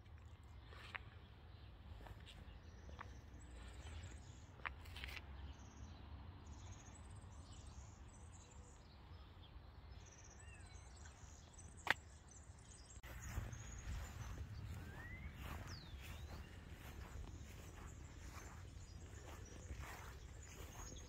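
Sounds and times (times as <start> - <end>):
bird chirps: 6.5 - 21.0
steady low rumble: 13.0 - 21.0.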